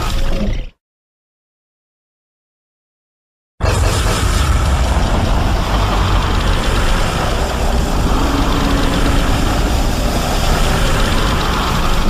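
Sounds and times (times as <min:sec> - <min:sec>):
loud low rumble: 0:03.6 - 0:12.0.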